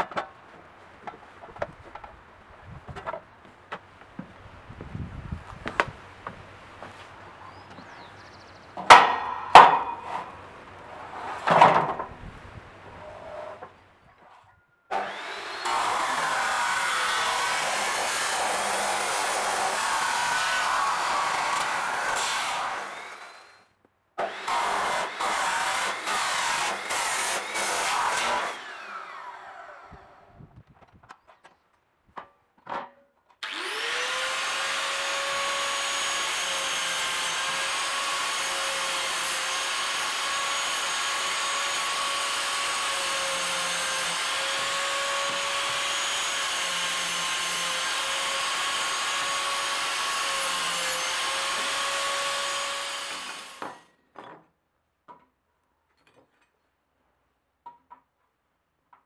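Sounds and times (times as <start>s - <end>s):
cut-off disc cutting steel: 14.9s - 23.6s, 24.2s - 30.2s, 33.4s - 53.9s.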